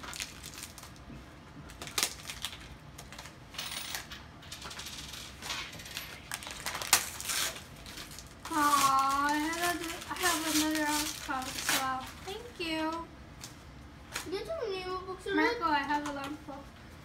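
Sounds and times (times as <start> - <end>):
wrapping paper crinkling: 0.0 - 3.4, 4.7 - 13.6.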